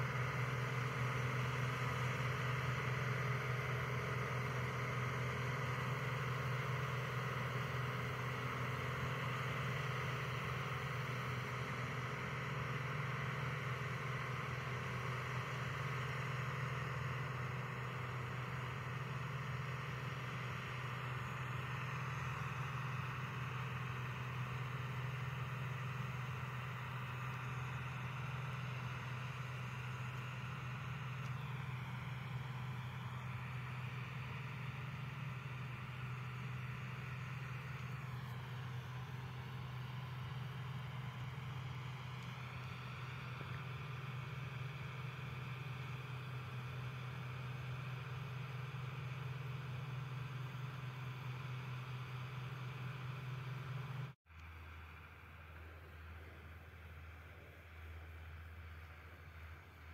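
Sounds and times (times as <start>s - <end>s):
combine harvester engine drone: 0.0s - 59.9s.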